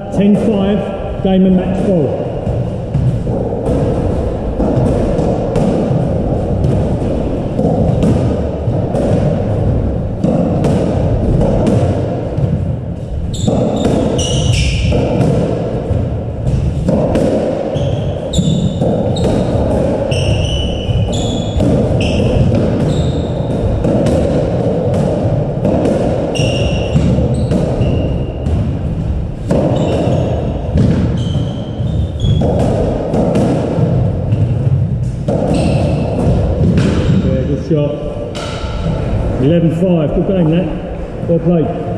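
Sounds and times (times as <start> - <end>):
racket striking squash ball: 0.0 - 41.6
ball hitting court walls: 0.2 - 41.6
low rumble: 0.9 - 13.3, 36.0 - 41.9
shoes squeaking on wooden floor: 13.2 - 15.2, 17.7 - 23.7, 26.3 - 28.5, 29.5 - 32.6, 34.3 - 36.3.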